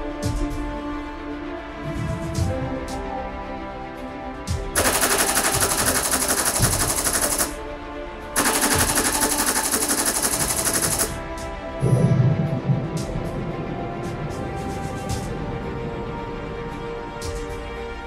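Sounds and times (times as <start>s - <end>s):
machine-gun fire: 4.8s - 7.6s, 8.4s - 11.2s.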